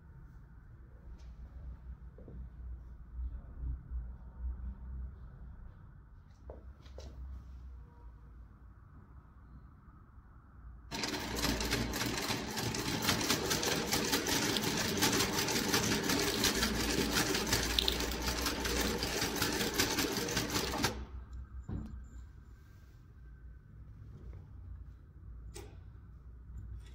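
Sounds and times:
sewing machine stitching: 10.9 - 21.2.

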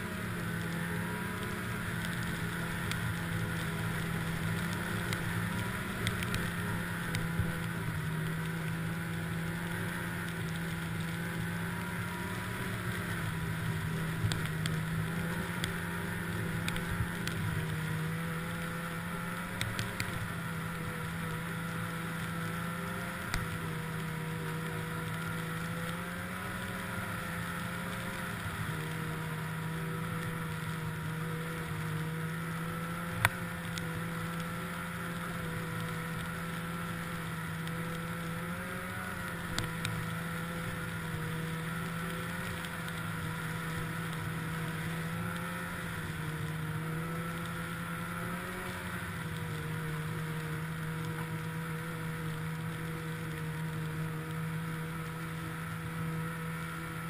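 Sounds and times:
snowmobile engine running: 0.0 - 57.0
faint clicks: 0.4 - 57.0.

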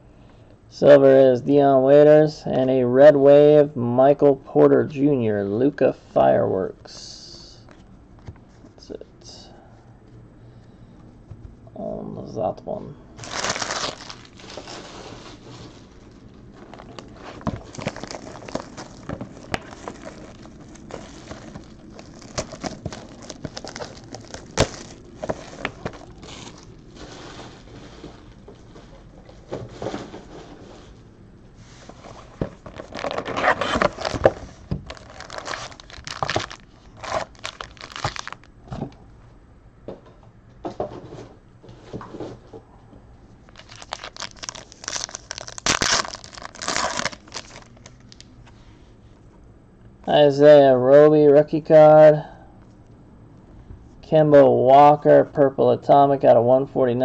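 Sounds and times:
plastic wrap crinkling and tearing: 13.2 - 28.5, 32.6 - 38.5, 43.4 - 48.3.

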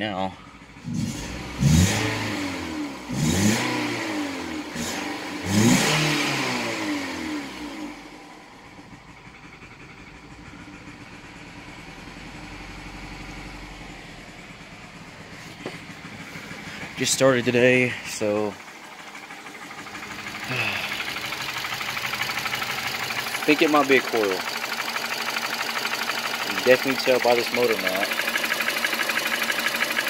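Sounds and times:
misfiring car engine revving: 0.7 - 30.0.

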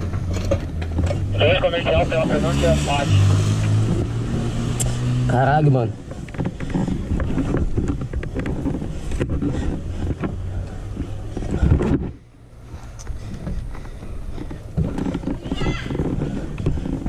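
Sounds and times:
wind buffeting microphone: 3.2 - 17.0
footsteps on corrugated roofing: 5.9 - 17.0.

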